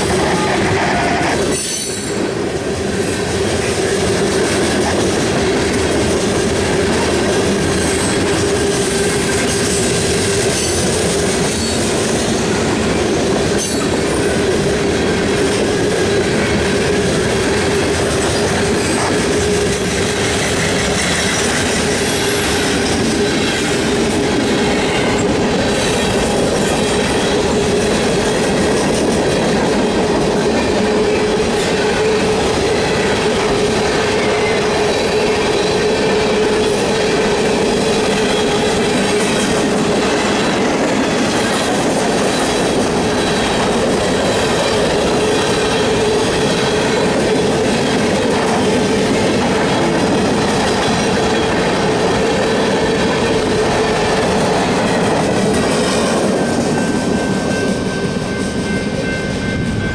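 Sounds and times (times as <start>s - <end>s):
freight train wheels clattering on rail: 0.0s - 59.9s
high wheel squeals: 19.6s - 22.7s.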